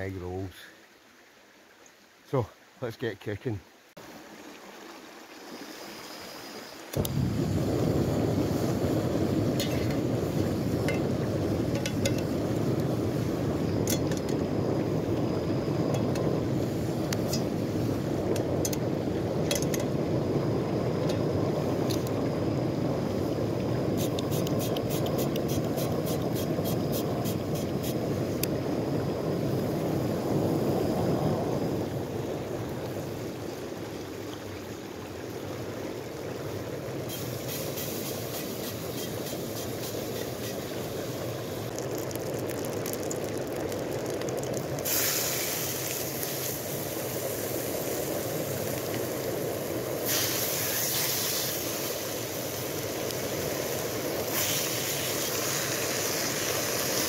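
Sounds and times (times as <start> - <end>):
hiss: 5.3 - 33.6, 36.9 - 57.0
bacon sizzling in a pan: 37.1 - 57.0.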